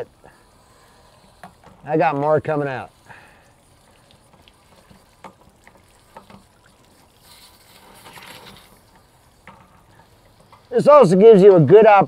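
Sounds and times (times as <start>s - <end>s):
water spray hissing in a tank: 0.0s - 12.0s
water trickling and splashing: 0.0s - 12.0s.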